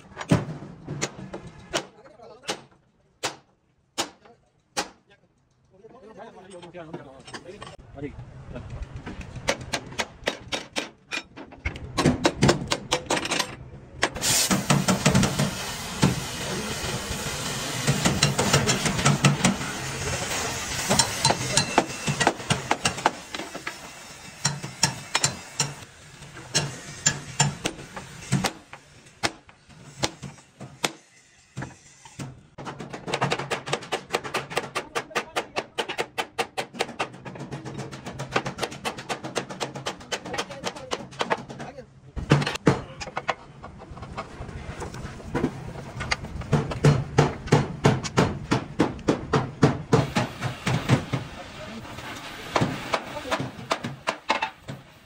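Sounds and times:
hammer on sheet metal: 0:20.8 - 0:23.4.

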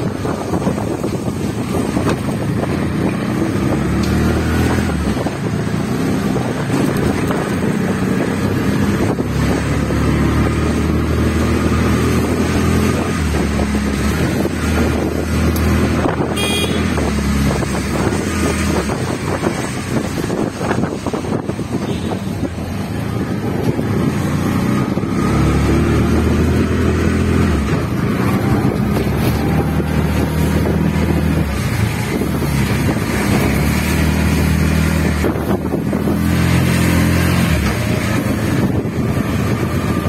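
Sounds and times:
road and wind noise: 0:00.0 - 0:40.0.

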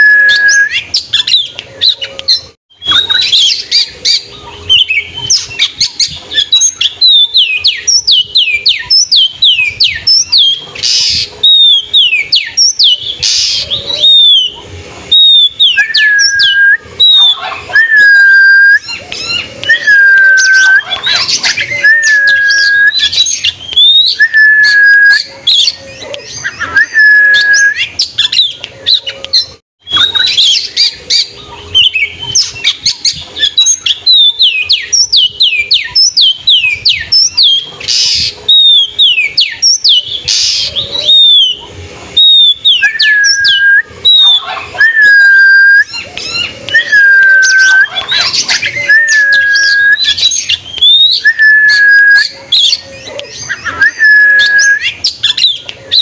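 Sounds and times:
bird singing whistled notes: 0:00.0 - 0:56.0.

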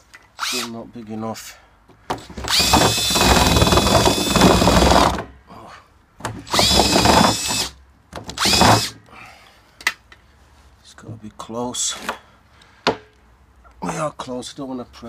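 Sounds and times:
cordless drill whining: 0:00.4 - 0:00.7, 0:02.4 - 0:05.2, 0:06.5 - 0:07.8, 0:08.4 - 0:09.0.

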